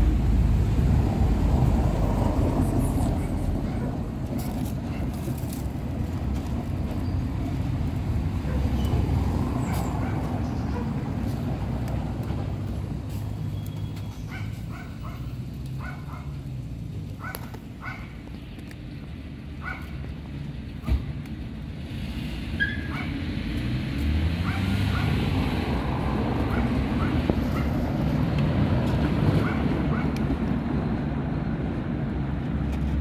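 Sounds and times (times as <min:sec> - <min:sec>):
road traffic rumble: 0:00.0 - 0:33.0
animal yipping: 0:17.2 - 0:18.2, 0:22.6 - 0:23.2.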